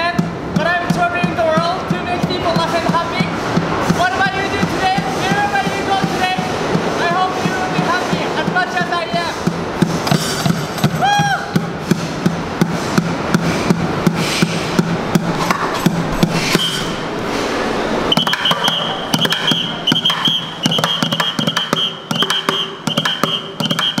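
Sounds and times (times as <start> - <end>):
drumming on plastic buckets: 0.0 - 16.7, 18.1 - 24.0
cymbals: 9.1 - 24.0
shrill whistle blasts: 18.0 - 24.0.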